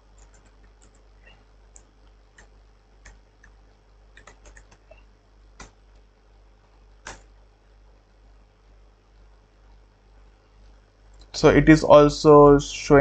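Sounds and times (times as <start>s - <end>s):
computer keyboard typing: 0.1s - 5.0s, 5.6s - 5.8s, 7.0s - 7.3s.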